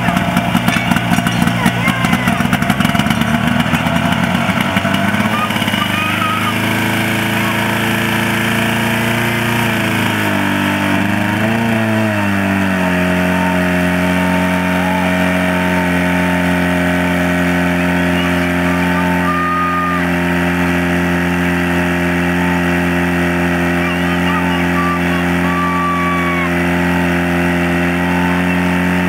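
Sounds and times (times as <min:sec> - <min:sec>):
fire pump engine running hard: 0:00.0 - 0:29.0.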